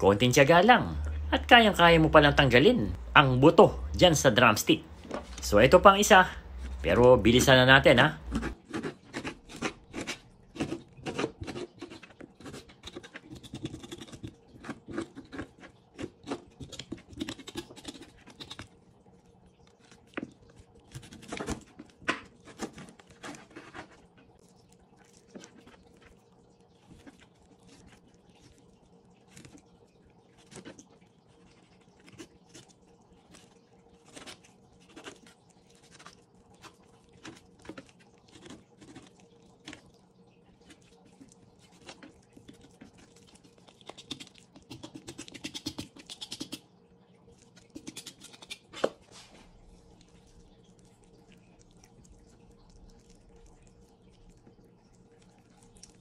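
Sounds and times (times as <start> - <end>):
knife cutting and scraping meat: 6.4 - 18.8, 19.7 - 24.3, 30.4 - 39.9, 40.6 - 46.7, 47.4 - 54.4.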